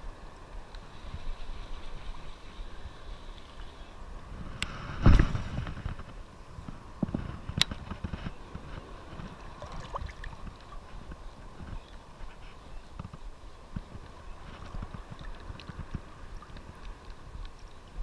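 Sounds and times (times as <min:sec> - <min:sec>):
shallow surf water sloshing: 0:08.8 - 0:11.6.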